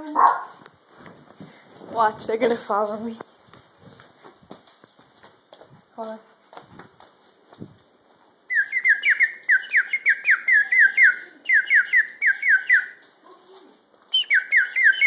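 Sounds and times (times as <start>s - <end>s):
bird caller falling chirps: 8.5s - 13.0s, 14.1s - 15.0s.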